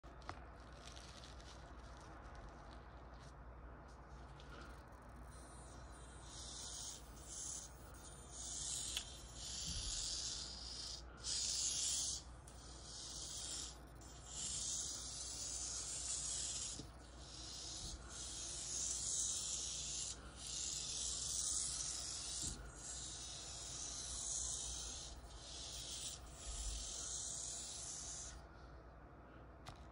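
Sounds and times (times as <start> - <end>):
toy car electric motor whirring: 5.4 - 28.4.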